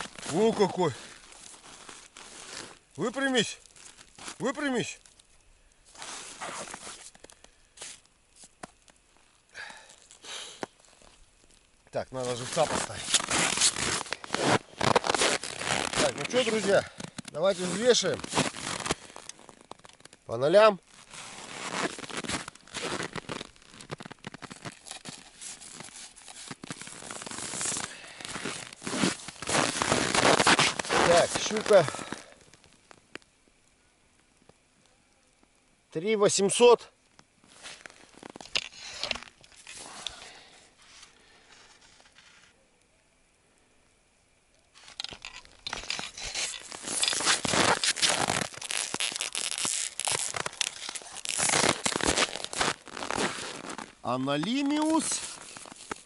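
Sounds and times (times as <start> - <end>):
fish scraping on snow: 0.0 - 2.8, 5.9 - 7.2, 12.2 - 19.7, 20.9 - 32.2, 37.5 - 42.5, 45.7 - 56.0
snow crackling and crunching: 0.0 - 34.6, 35.9 - 42.6, 44.8 - 56.0.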